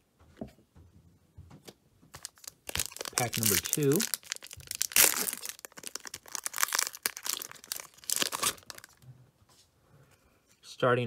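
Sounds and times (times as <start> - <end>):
foil wrapper crinkling: 2.1 - 9.0.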